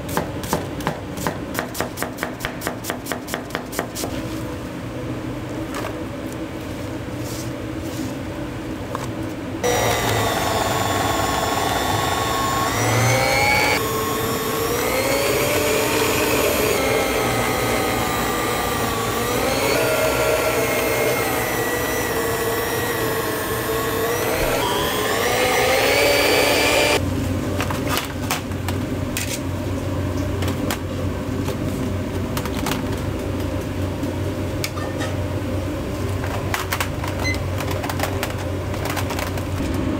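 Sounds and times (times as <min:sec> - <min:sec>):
kitchen appliance motor running: 0:09.6 - 0:27.0.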